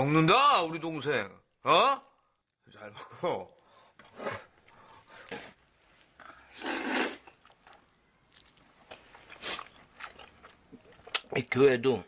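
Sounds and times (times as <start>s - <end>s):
noodles being slurped: 6.4s - 10.6s.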